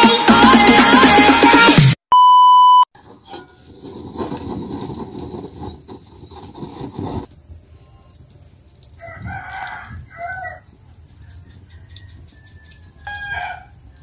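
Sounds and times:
rooster crowing: 0:09.0 - 0:10.7, 0:11.4 - 0:14.0.

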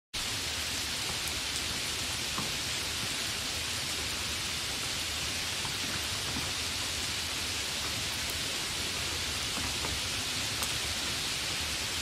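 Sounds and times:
steady rain hiss: 0:00.2 - 0:12.0
faint raindrop ticks: 0:01.0 - 0:03.3, 0:05.4 - 0:11.6.

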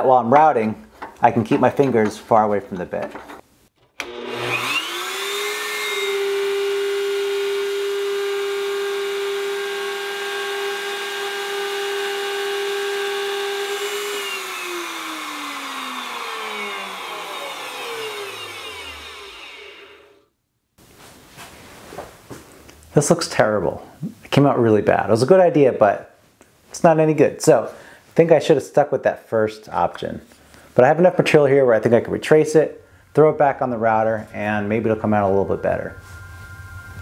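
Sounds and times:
router whining: 0:03.9 - 0:20.2.

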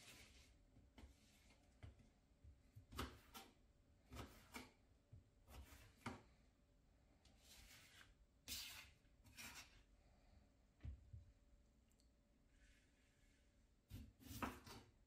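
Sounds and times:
knife slicing potato on cutting board: 0:02.7 - 0:04.8, 0:05.4 - 0:06.2, 0:13.9 - 0:15.0.

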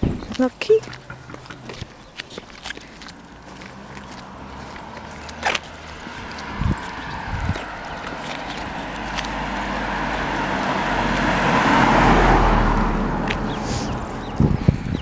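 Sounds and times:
car passing by: 0:03.4 - 0:14.4.

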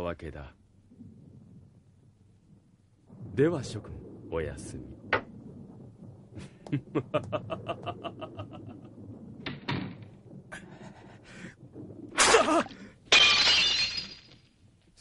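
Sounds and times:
glass shattering: 0:12.2 - 0:14.5.

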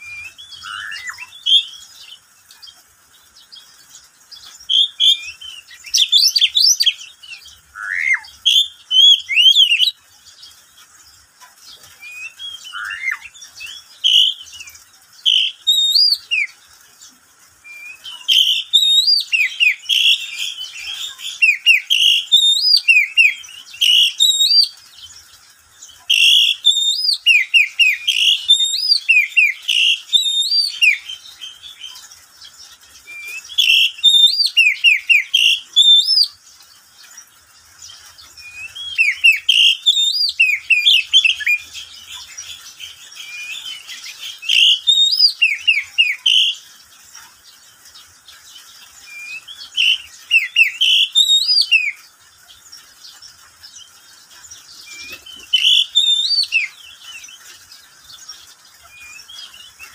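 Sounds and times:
bird singing whistled phrases: 0:00.0 - 0:02.2, 0:04.6 - 0:10.0, 0:12.0 - 0:16.6, 0:17.6 - 0:24.8, 0:26.1 - 0:32.0, 0:33.0 - 0:36.4, 0:38.4 - 0:46.6, 0:49.0 - 0:52.0, 0:54.8 - 0:57.4, 0:58.9 - 0:59.9.

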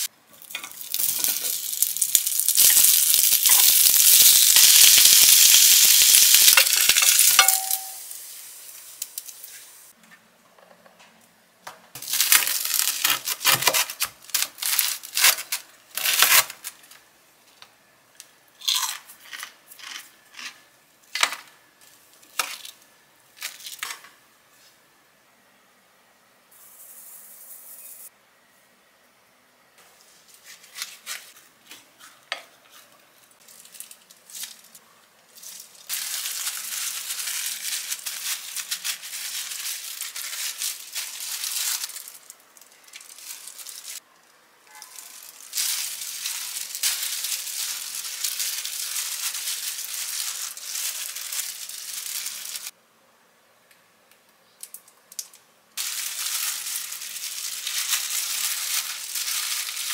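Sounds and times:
plastic gloves crinkling: 0:00.0 - 0:10.0, 0:12.0 - 0:17.1, 0:21.8 - 0:24.1, 0:29.9 - 0:44.1, 0:44.7 - 0:52.7, 0:55.1 - 0:59.9
seeds pouring into glass bowl: 0:00.7 - 0:08.2, 0:55.8 - 0:59.9.

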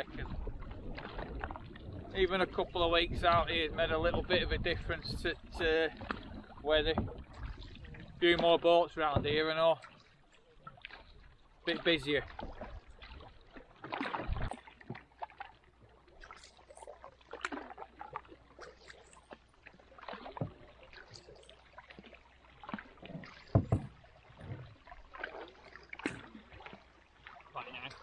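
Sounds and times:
paddle dipping through water: 0:00.0 - 0:28.0
water splashes and gurgles: 0:00.0 - 0:28.0
thump: 0:23.5 - 0:23.9.

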